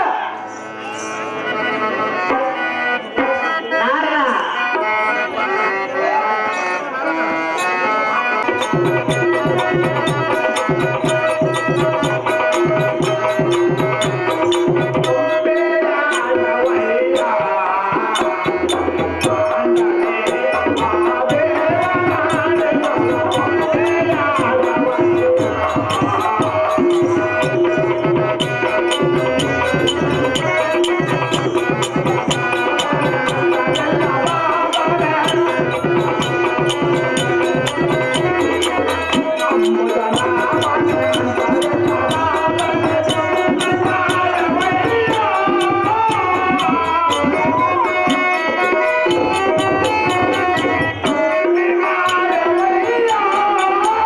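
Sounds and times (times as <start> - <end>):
wavering melody line: 7.6 - 54.0
fast drumming: 8.4 - 54.0.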